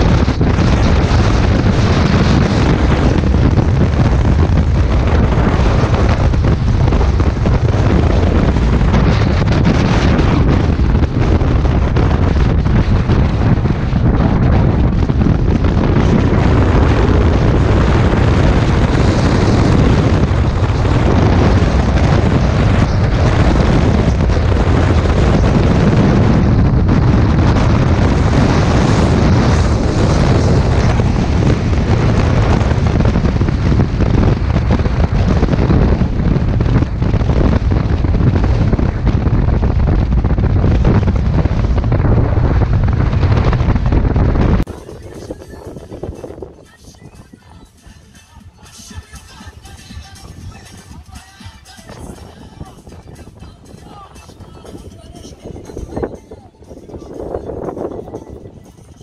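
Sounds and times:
road noise: 0.0s - 59.0s
wind buffeting microphone: 0.0s - 59.0s.

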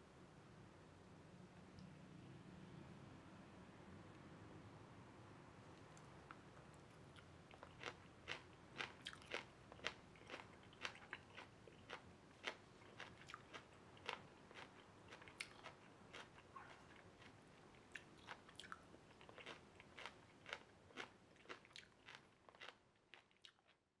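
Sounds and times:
person chewing crunchy stems: 6.0s - 23.8s.

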